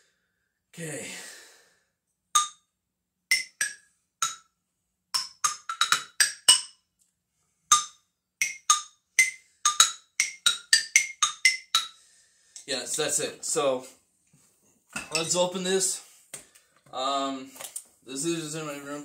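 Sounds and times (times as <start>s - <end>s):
xylophone struck with mallets: 2.4s - 2.6s, 3.3s - 4.5s, 5.2s - 6.8s, 7.7s - 12.0s.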